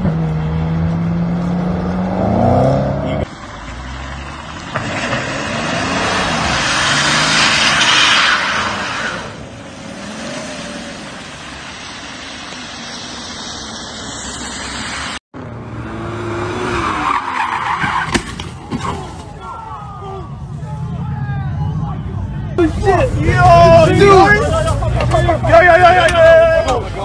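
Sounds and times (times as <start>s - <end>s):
car engine revving: 0.0s - 18.0s
tyres skidding on wet asphalt: 2.6s - 21.4s, 22.6s - 27.0s.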